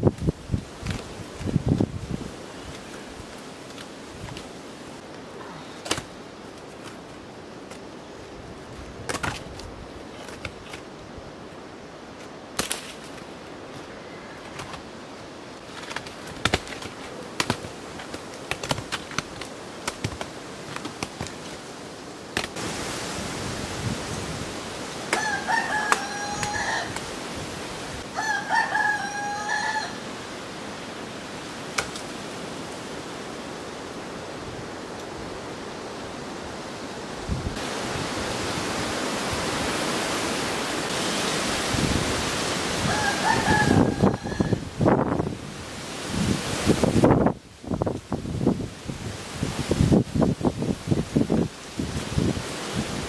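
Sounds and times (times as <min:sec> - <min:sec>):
rooster crowing: 0:25.1 - 0:27.0, 0:28.1 - 0:30.1, 0:42.8 - 0:44.7.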